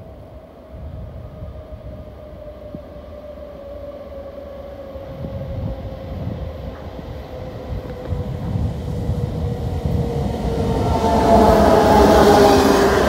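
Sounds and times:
electric locomotive whine: 0:00.0 - 0:13.0
low uneven rumble: 0:05.3 - 0:13.0.

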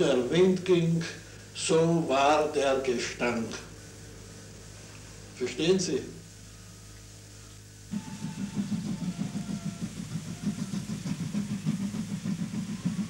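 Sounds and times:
faint hum: 0:00.0 - 0:13.0
steam locomotive rumbling: 0:07.8 - 0:13.0.

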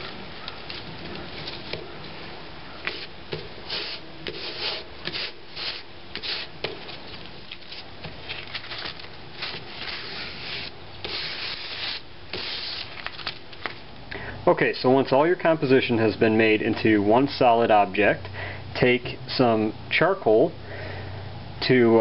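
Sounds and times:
dry scraping strokes: 0:02.8 - 0:06.6, 0:09.4 - 0:12.9
fingers rubbing on paper plate: 0:03.7 - 0:06.5.

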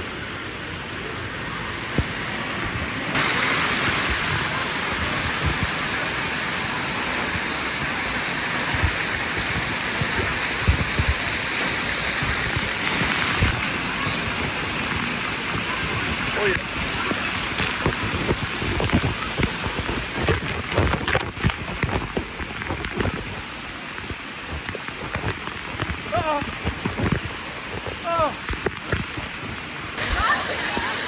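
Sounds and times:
water spraying onto concrete: 0:00.1 - 0:31.0.

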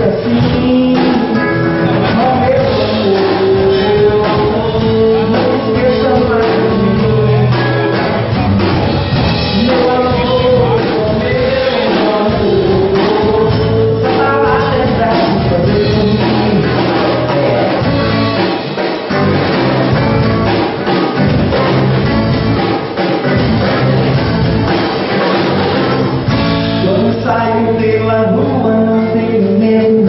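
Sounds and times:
person singing: 0:00.0 - 0:18.6, 0:26.6 - 0:30.0
acoustic guitars: 0:00.0 - 0:30.0
drum kit: 0:00.0 - 0:30.0.

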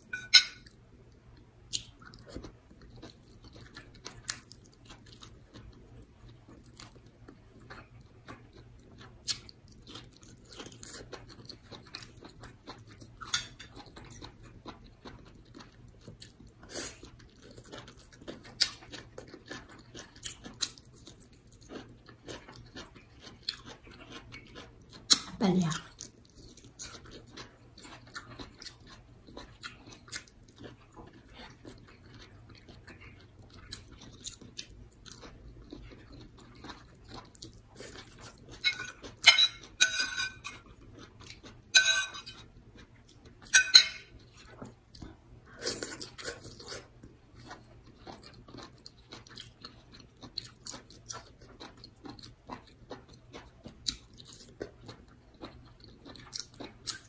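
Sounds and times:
metal spoon scraping plate: 0:00.1 - 0:00.6, 0:38.7 - 0:40.4, 0:41.8 - 0:42.4, 0:43.6 - 0:44.1
chewing and mouth sounds: 0:00.1 - 0:57.0.

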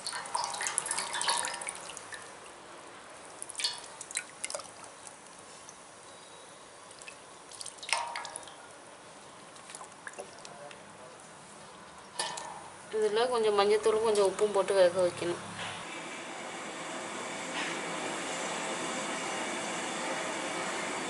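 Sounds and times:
water splashing and dripping: 0:00.0 - 0:02.6, 0:03.2 - 0:05.8, 0:06.9 - 0:10.6, 0:12.0 - 0:12.9.

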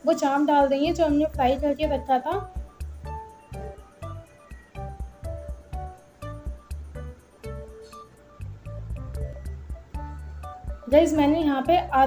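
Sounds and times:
plucked notes over bass line: 0:08.4 - 0:12.0.

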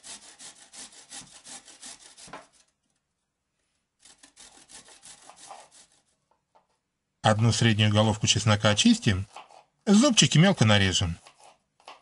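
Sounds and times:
carrot grated on metal grater: 0:04.0 - 0:06.1.

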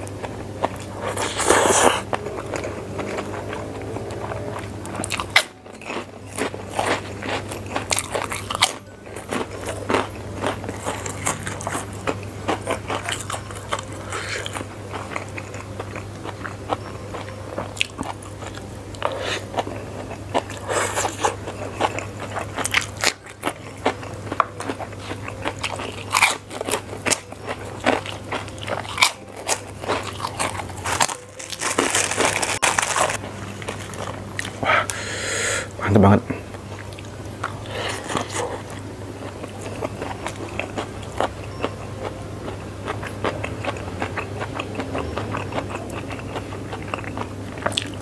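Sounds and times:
crackers crunching: 0:00.0 - 0:35.1, 0:36.5 - 0:48.0
steady low hum: 0:00.0 - 0:48.0
chewing noodles: 0:00.2 - 0:35.0, 0:36.7 - 0:48.0
plastic bag rustling: 0:30.9 - 0:34.6.

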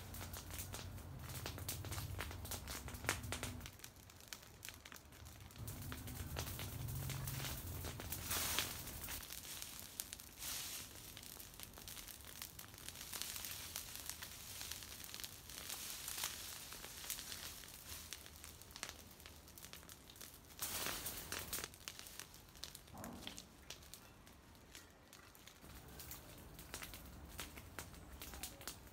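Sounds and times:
brush fire crackling: 0:00.0 - 0:28.9
dry branches rustling: 0:05.5 - 0:28.9.

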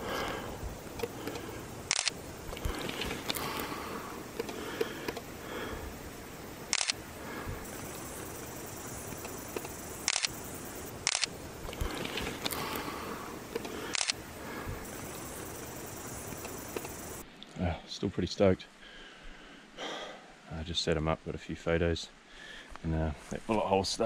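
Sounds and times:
faint outdoor background: 0:00.0 - 0:24.0
camera shutter clicks: 0:01.0 - 0:03.7, 0:06.7 - 0:07.0, 0:09.1 - 0:10.4, 0:11.0 - 0:12.9, 0:13.5 - 0:14.2, 0:16.3 - 0:17.0.

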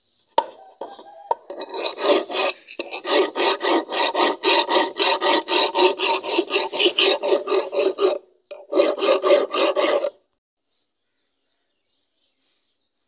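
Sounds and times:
metal file rasping: 0:00.8 - 0:10.2.

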